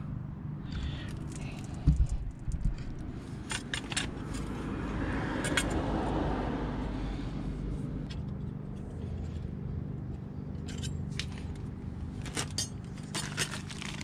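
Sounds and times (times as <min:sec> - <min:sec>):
low hum: 0:00.0 - 0:14.0
small metal parts clinking: 0:00.7 - 0:04.5, 0:05.4 - 0:05.8, 0:10.5 - 0:14.0.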